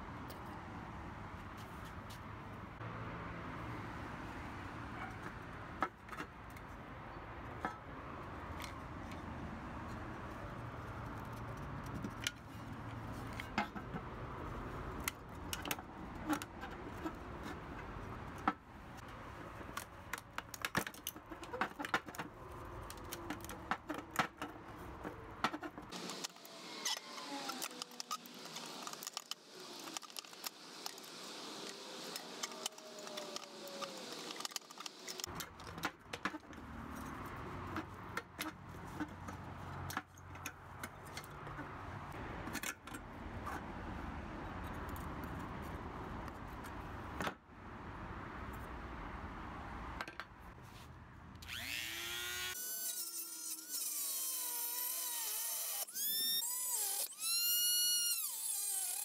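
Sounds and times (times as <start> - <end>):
metal clicks taps and scrapes: 8.5 - 14.1.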